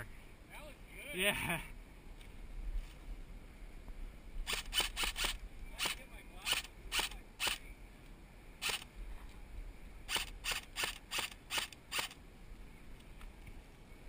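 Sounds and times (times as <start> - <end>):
airsoft rifle shots: 4.5 - 7.6, 8.6 - 8.9, 10.1 - 12.2.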